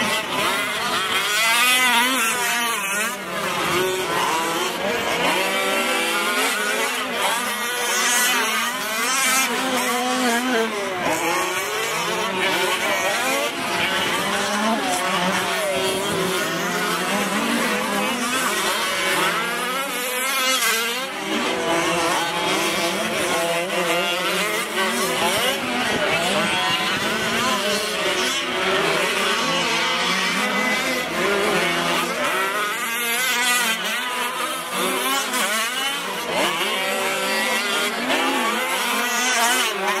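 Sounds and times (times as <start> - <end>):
rc truck engines revving: 0.0 - 40.0.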